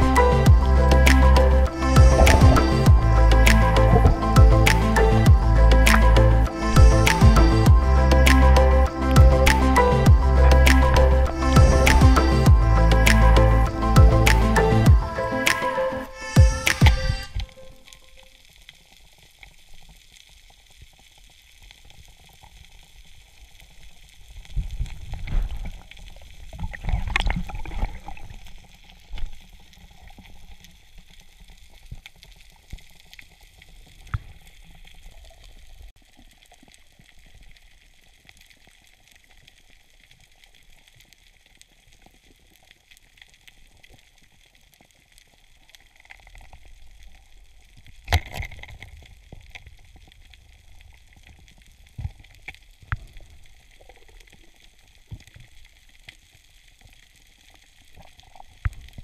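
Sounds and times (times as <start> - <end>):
water gushes: 0.0 - 38.7
underwater water wash: 0.0 - 59.0
small underwater clicks and crackles: 16.2 - 59.0.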